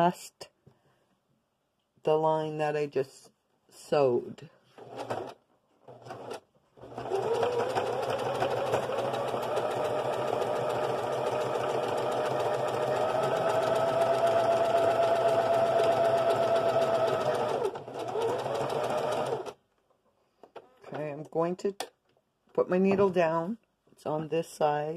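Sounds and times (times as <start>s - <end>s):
sewing machine stitching: 4.8s - 19.6s.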